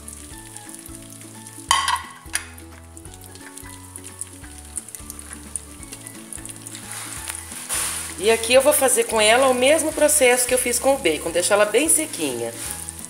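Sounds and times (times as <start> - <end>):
sausage sizzling in fat: 0.0 - 13.0
loud burst of spattering: 6.4 - 8.3.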